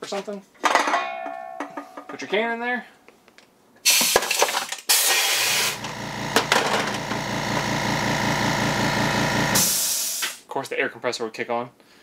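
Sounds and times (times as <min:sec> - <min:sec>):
air hiss of can crusher: 0:03.8 - 0:05.8, 0:09.5 - 0:10.4
air compressor running: 0:04.9 - 0:10.4.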